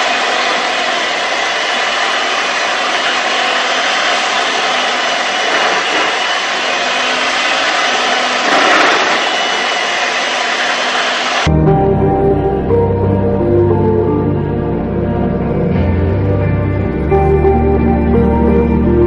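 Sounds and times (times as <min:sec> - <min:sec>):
loud steady rushing noise: 0:00.0 - 0:11.5.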